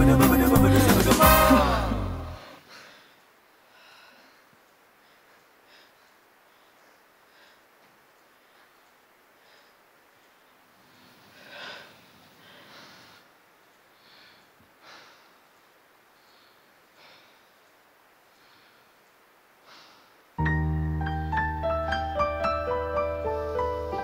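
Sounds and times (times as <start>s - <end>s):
person breathing through nose: 10.9s - 13.3s
loud piano playing: 20.4s - 24.0s.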